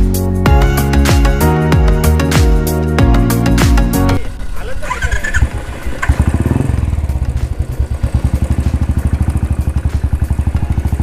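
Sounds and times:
motorcycle engine idling: 0:04.2 - 0:11.0.

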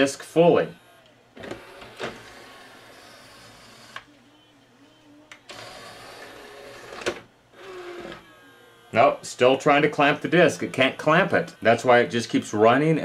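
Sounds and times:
loading motor whirring: 0:00.8 - 0:04.1, 0:05.3 - 0:09.6.

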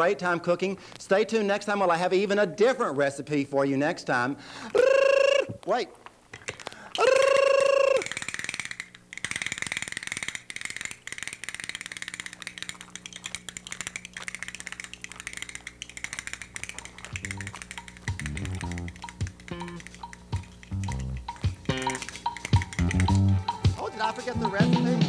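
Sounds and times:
voice holding a high note: 0:04.8 - 0:05.6, 0:07.0 - 0:08.1
low music notes: 0:17.2 - 0:25.0.

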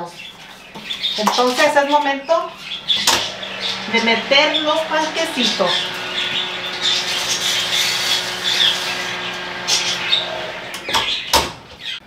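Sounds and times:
oven door shutting: 0:02.8 - 0:11.8.

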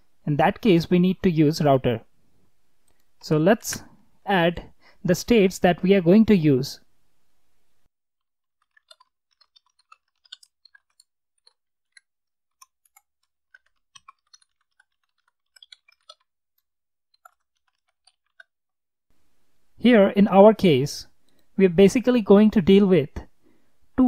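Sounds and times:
faint computer keyboard typing: 0:08.6 - 0:18.5.

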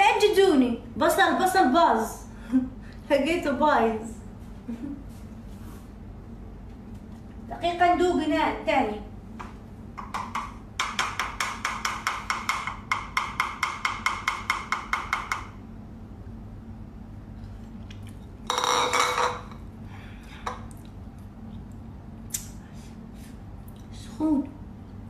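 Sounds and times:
wooden spoon clacking on bowl: 0:10.0 - 0:15.5.

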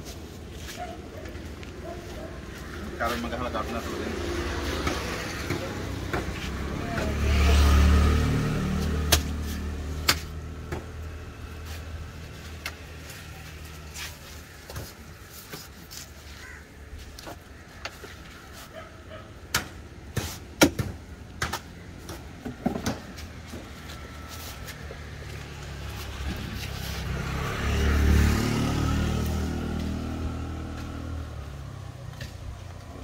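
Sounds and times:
vehicle low rumble: 0:21.0 - 0:33.0.

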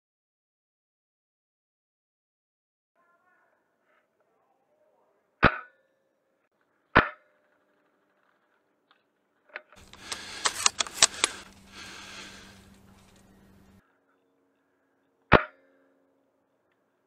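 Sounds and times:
airsoft rifle shots: 0:09.8 - 0:12.5.

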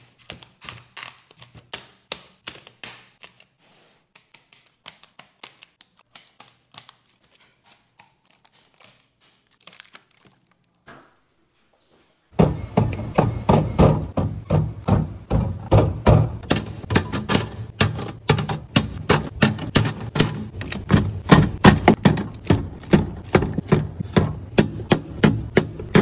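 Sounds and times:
scissors snipping plastic: 0:00.0 - 0:10.4.

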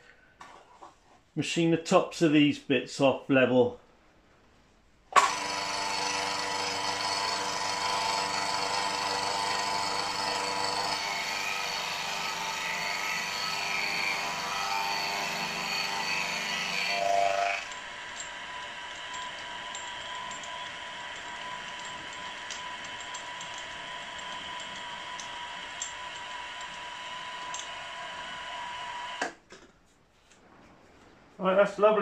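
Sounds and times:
milling machine cutting metal: 0:05.2 - 0:29.3.

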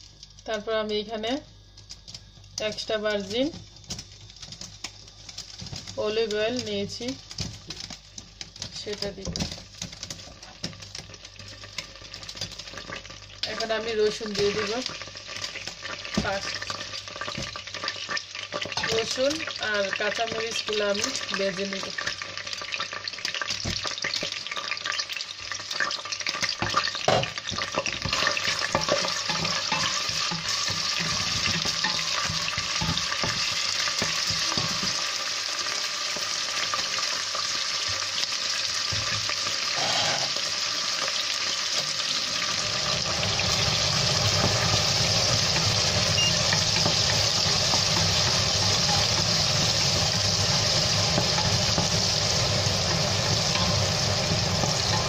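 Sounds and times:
garlic sizzling in hot oil: 0:00.0 - 0:55.0
wooden spoon stirring: 0:26.4 - 0:35.1, 0:43.6 - 0:55.0.

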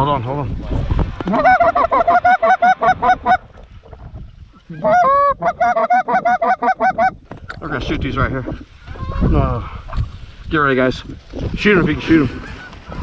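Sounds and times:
goose call clucks and honks: 0:01.3 - 0:03.4, 0:04.7 - 0:07.2.

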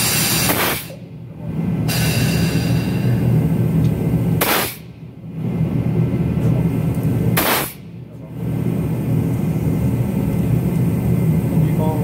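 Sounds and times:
compressed air hissing: 0:00.0 - 0:01.0, 0:01.9 - 0:03.4, 0:04.4 - 0:04.9, 0:07.4 - 0:07.8
steady low rumble: 0:00.0 - 0:12.0.

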